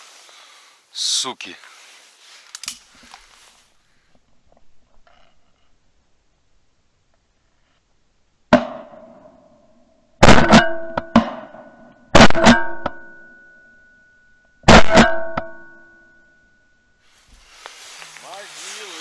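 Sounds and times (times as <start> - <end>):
percussive hits with guitar chords: 8.5 - 9.4, 10.2 - 13.2, 14.6 - 15.8.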